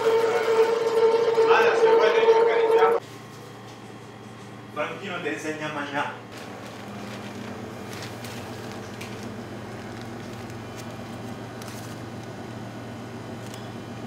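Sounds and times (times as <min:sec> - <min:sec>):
dough squelching from piping bag: 0:06.3 - 0:12.5.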